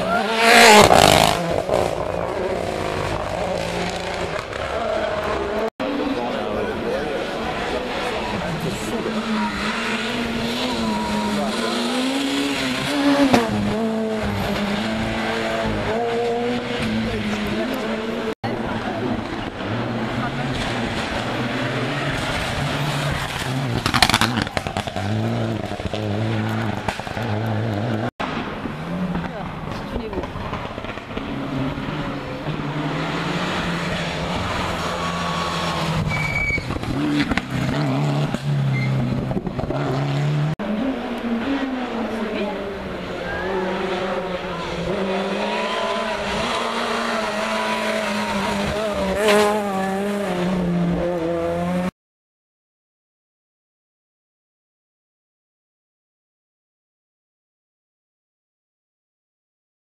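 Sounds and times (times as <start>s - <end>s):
rally car engine at high revs: 0.0s - 51.9s
engine crackles and pops: 22.1s - 32.6s, 35.8s - 39.8s.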